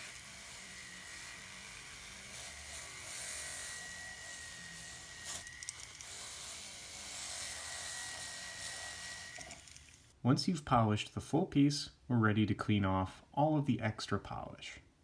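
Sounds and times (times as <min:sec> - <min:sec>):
rotary tool high whine: 0:00.0 - 0:10.1.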